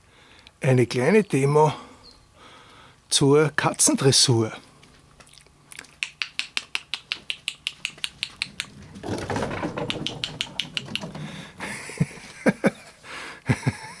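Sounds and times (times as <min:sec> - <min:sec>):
rapid clicking: 0:06.0 - 0:11.6.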